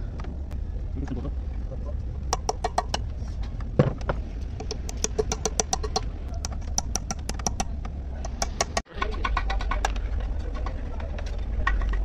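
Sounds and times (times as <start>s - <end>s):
steady low hum: 0.0s - 12.0s
hammer tapping on metal: 2.3s - 3.1s, 4.6s - 9.9s.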